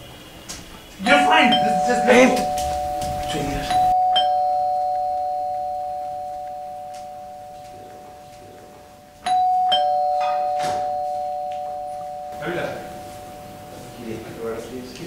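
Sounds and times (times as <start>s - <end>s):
ding-dong doorbell chime: 1.0s - 8.6s, 9.2s - 13.7s.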